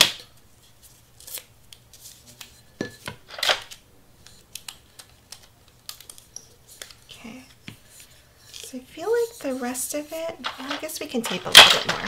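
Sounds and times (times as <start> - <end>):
paper rustling: 3.3 - 12.0.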